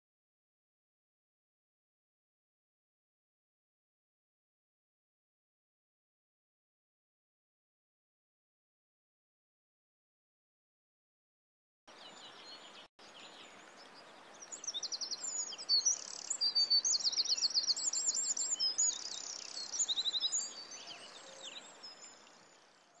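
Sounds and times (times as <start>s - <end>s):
faint steady hiss: 11.9s - 23.0s
songbirds trilling and chirping: 11.9s - 23.0s.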